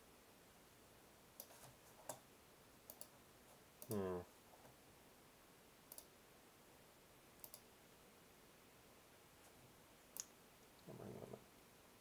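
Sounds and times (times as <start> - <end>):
faint computer mouse clicks: 2.9 - 3.1, 5.9 - 6.1, 7.4 - 7.7.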